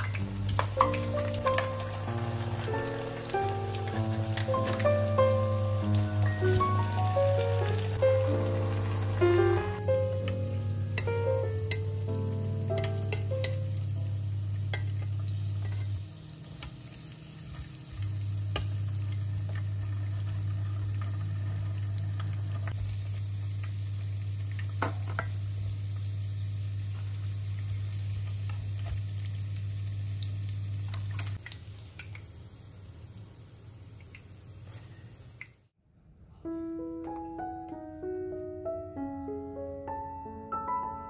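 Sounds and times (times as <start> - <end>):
oil sizzling in a pan: 0.0 - 35.7
metal tongs clicking on pan: 12.7 - 13.6.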